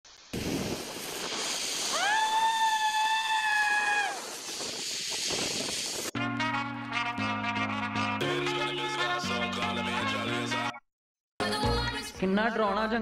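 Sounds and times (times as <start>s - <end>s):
hiss with whistle-like tone: 0.1s - 6.1s.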